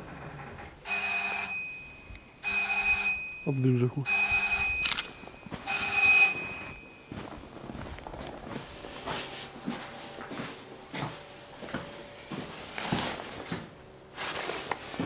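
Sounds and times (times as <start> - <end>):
bell ringing in bursts: 0.9 - 7.3
scattered knocks and shuffles: 4.7 - 15.0.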